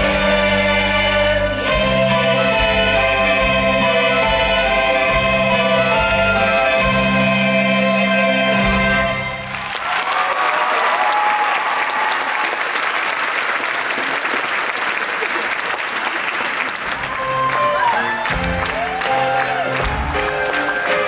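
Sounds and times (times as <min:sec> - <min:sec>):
music playing: 0:00.0 - 0:09.6, 0:17.0 - 0:21.0
audience applauding: 0:09.4 - 0:21.0.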